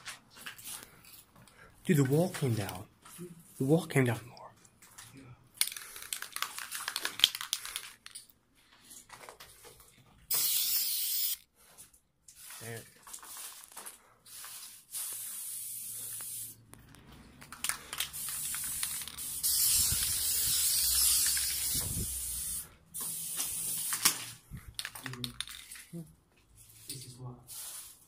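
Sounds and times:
spray paint can hissing: 10.3s - 11.4s, 14.3s - 16.6s, 18.1s - 24.2s, 27.5s - 28.0s.

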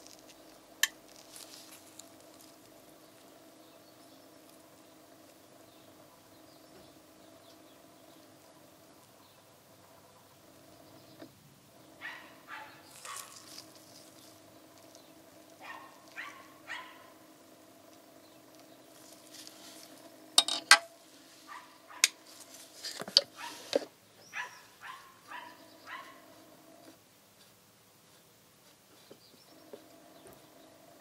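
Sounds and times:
faint steady hum: 0.0s - 31.0s
soft metal scrapes: 19.0s - 23.9s
sharp metallic clicks and knocks: 20.4s - 21.0s.

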